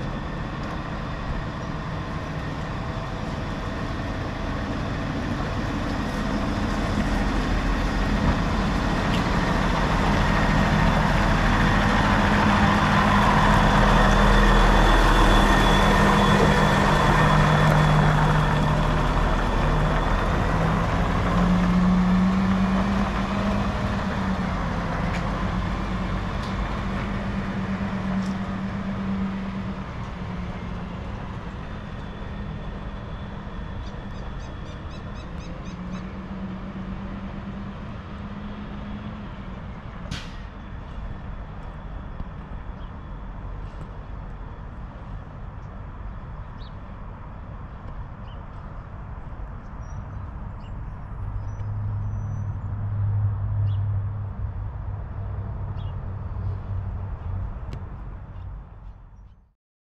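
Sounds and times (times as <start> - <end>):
garbage truck driving past: 0.0 - 44.2.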